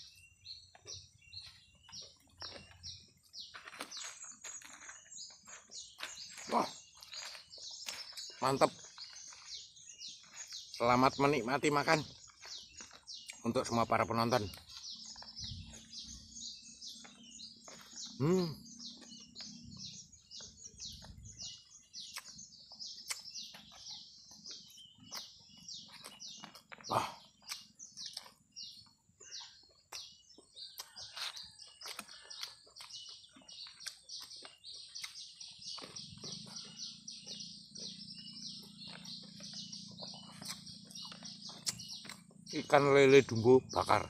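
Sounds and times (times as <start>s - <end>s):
birds chirping: 0.0s - 44.0s
mouth clicks and smacks eating: 18.9s - 42.5s.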